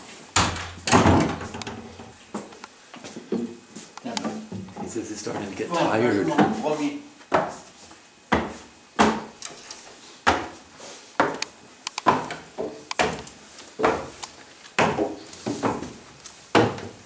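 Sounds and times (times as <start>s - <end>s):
footsteps on wooden stairs: 1.2s - 5.6s, 7.3s - 10.6s, 11.2s - 17.0s.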